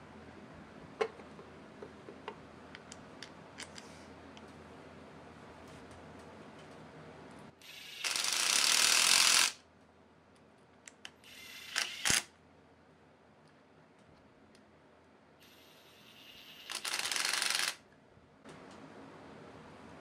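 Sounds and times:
cordless power tool bursts: 7.6s - 9.6s.

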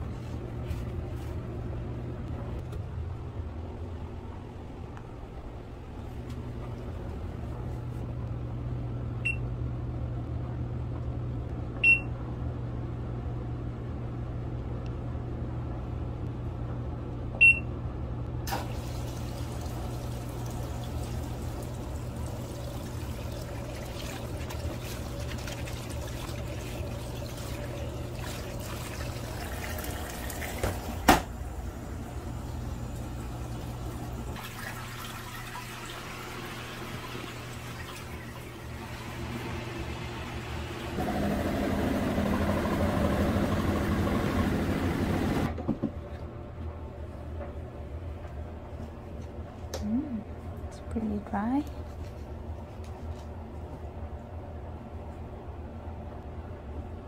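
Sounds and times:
washing machine low hum: 0.0s - 57.0s
water pouring into tub: 18.5s - 30.9s, 34.4s - 38.8s.

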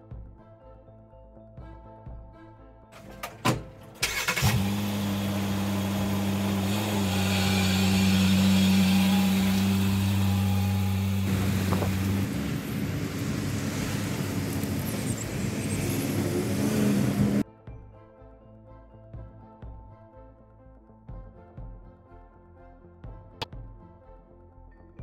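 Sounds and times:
car engine starting and idling: 3.0s - 17.4s.

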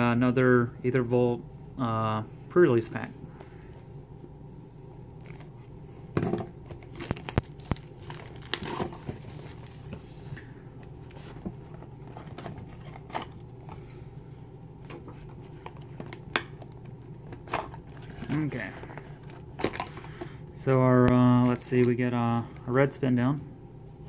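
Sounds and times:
packaging crinkling and tearing: 6.6s - 9.9s.

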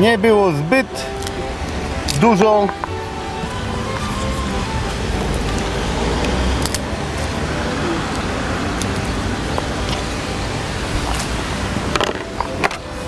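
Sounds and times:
road traffic hum: 0.0s - 13.0s.

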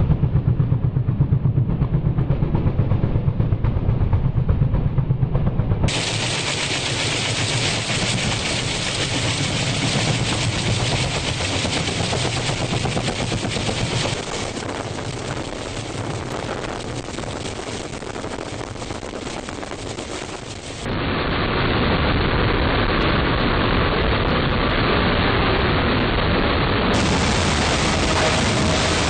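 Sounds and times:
helicopter rotor chopping: 0.0s - 20.9s, 26.9s - 29.0s
jet engine hovering: 0.0s - 22.5s, 25.2s - 29.0s.

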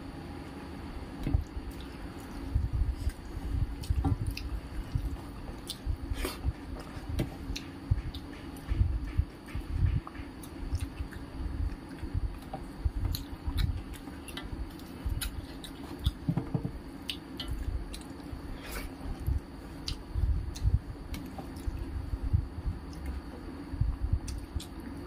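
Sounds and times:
steady low hum: 0.0s - 25.0s
wet chewing: 13.1s - 16.3s.

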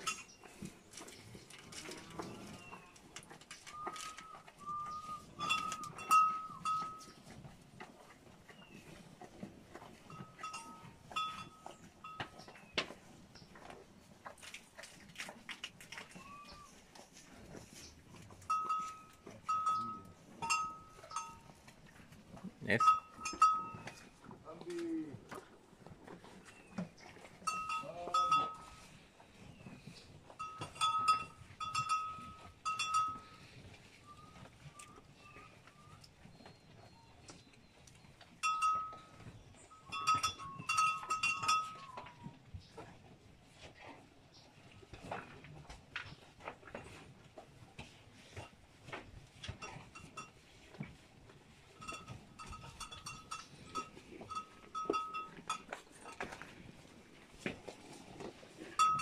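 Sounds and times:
metal cattle bell clanking: 0.0s - 8.0s, 9.7s - 12.7s, 18.2s - 24.4s, 27.4s - 29.0s, 29.6s - 35.5s, 38.3s - 42.4s, 49.4s - 50.7s, 51.7s - 56.8s, 58.6s - 59.0s.

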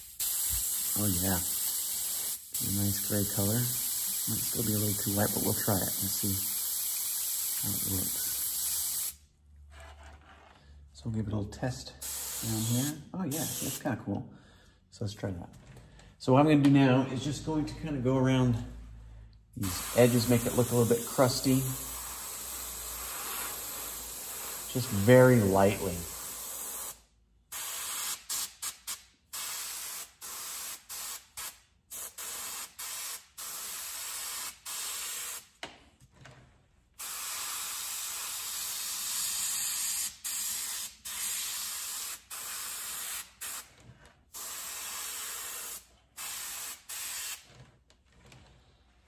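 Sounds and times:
airbrush hissing in bursts: 0.0s - 9.2s, 12.0s - 13.8s, 19.6s - 35.5s, 37.0s - 43.7s, 44.4s - 47.4s.

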